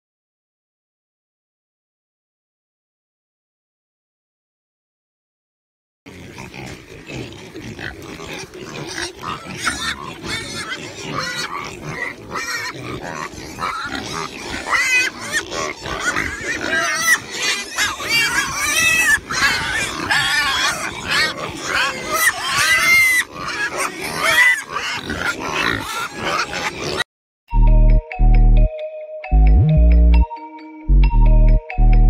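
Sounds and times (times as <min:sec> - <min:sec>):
pigs grunting and squealing: 0:06.1 - 0:27.1.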